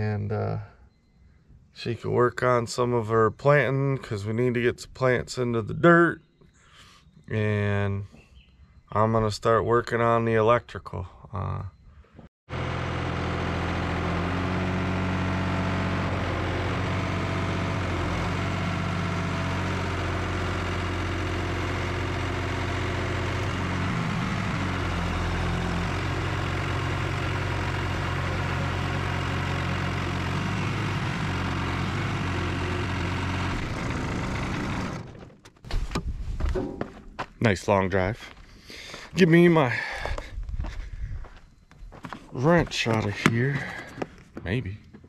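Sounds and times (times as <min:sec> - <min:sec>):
tractor engine running: 0:12.5 - 0:45.0.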